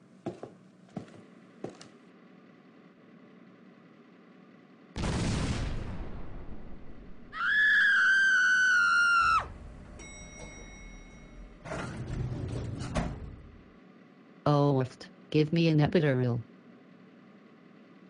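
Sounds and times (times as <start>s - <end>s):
noisy crash: 5.0s - 7.3s
high-pitched scream: 7.3s - 9.5s.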